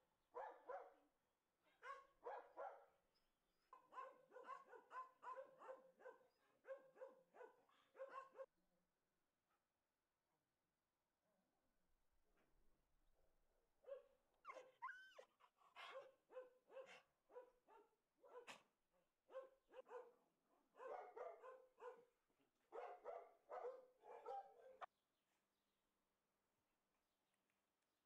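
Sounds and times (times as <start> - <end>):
dog barking and yelping: 1.7 - 2.8, 3.7 - 8.5, 13.9 - 18.7, 19.3 - 20.1, 20.8 - 22.1, 22.7 - 24.9.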